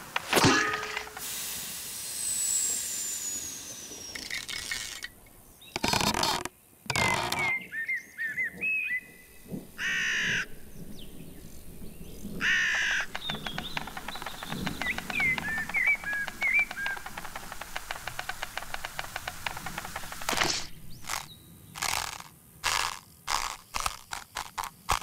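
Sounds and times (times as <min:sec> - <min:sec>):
cartoon sharp hit: 0:00.3 - 0:01.2
falling whistle: 0:02.0 - 0:04.5
squeaky chirps: 0:03.4 - 0:07.8, 0:12.4 - 0:25.0
croaky caw-like call: 0:09.7 - 0:10.5, 0:12.4 - 0:20.1.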